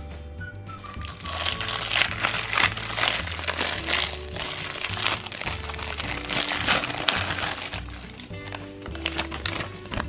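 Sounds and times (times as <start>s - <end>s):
plastic tablecloth crinkling: 0.8s - 10.0s.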